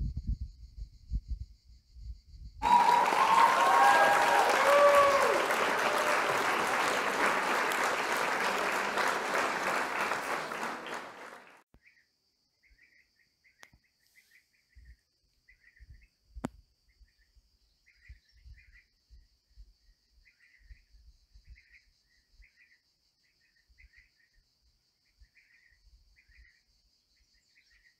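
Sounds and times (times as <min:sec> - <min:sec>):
crowd applauding: 0:02.6 - 0:11.6.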